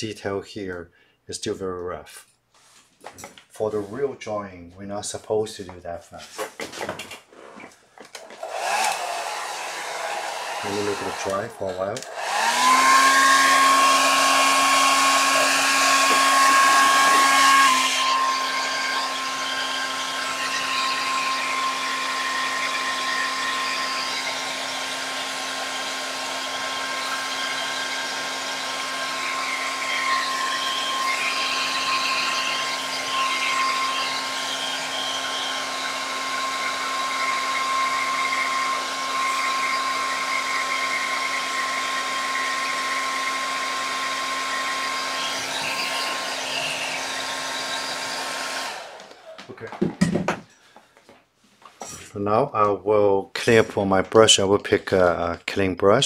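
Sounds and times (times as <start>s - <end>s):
hair dryer running: 8.2s - 50.4s.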